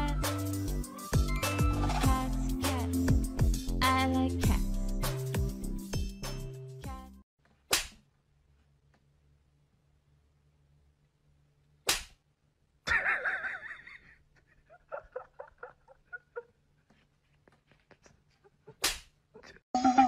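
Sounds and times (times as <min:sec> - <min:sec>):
music: 0:00.0 - 0:07.2
sharp snaps: 0:07.7 - 0:08.0, 0:11.8 - 0:12.2, 0:18.8 - 0:19.1.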